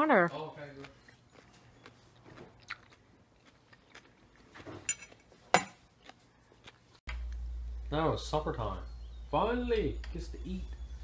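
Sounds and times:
person chewing: 0.3s - 7.4s.

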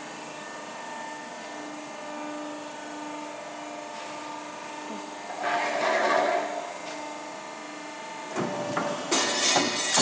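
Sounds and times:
sharp metallic knocks and clanks: 8.4s - 10.0s.

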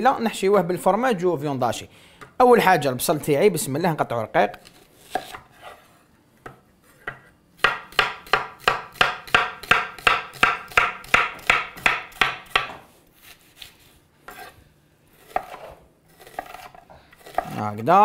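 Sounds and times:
knife slicing onion on wooden board: 7.0s - 17.6s.

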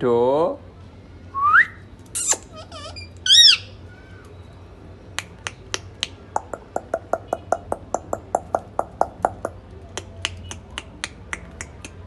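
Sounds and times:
parakeet squawks and chirps: 2.2s - 4.2s
sharp snapping clicks: 5.2s - 12.0s.

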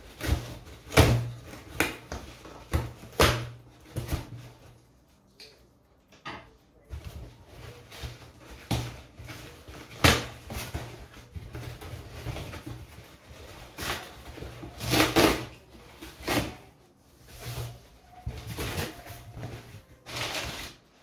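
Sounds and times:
cardboard box tearing and scraping: 13.6s - 17.8s, 18.4s - 20.8s.

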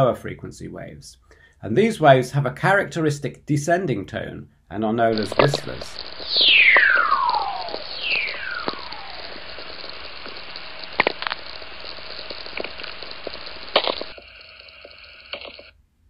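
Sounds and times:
steady radio hiss: 4.6s - 15.7s
descending whistler tones: 5.2s - 10.7s
sharp cracks of spherics: 5.2s - 14.2s.

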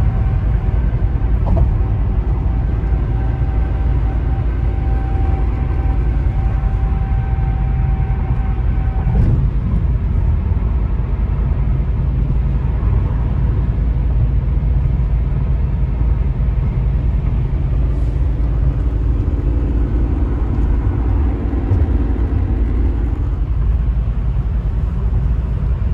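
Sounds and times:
steady high tone: 0.0s - 9.2s, 17.7s - 24.2s
car cabin engine and tyre rumble: 0.0s - 25.9s.

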